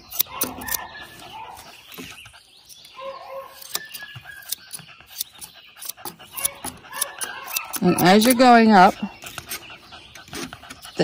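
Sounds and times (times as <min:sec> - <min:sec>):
grooming shears snipping hair: 0:00.0 - 0:11.0.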